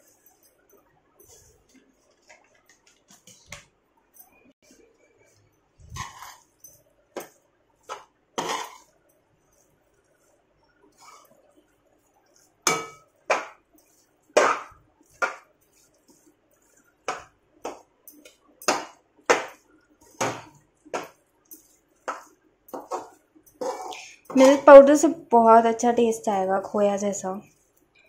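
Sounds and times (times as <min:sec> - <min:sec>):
metal spatula scraping steel pan: 0:05.9 - 0:06.6, 0:07.9 - 0:09.0, 0:12.7 - 0:17.3, 0:21.0 - 0:24.7.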